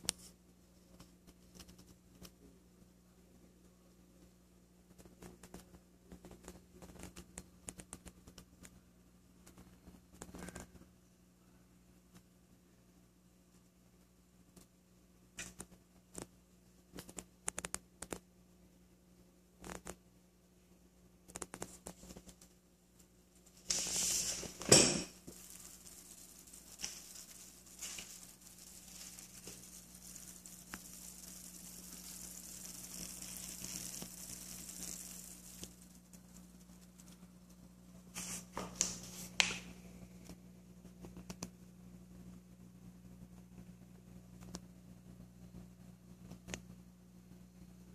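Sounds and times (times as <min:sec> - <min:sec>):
rustling: 0:21.3 - 0:39.8
aquarium filter humming: 0:21.6 - 0:47.9.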